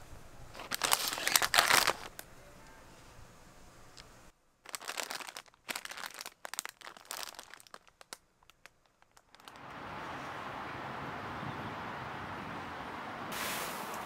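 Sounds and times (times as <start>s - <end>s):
plastic packaging crinkling: 0.5s - 2.3s, 4.6s - 9.6s.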